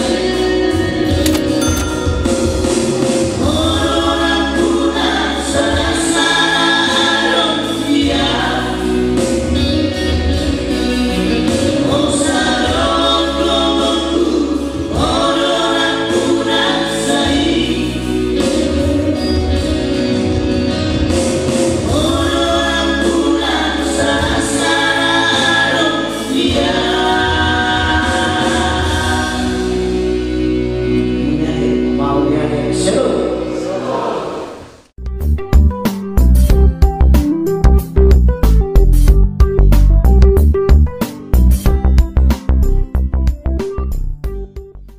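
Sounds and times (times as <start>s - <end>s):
male vocal trio singing in harmony: 0.0s - 1.5s, 3.2s - 34.7s
low musical accompaniment: 28.9s - 34.1s, 35.0s - 44.9s.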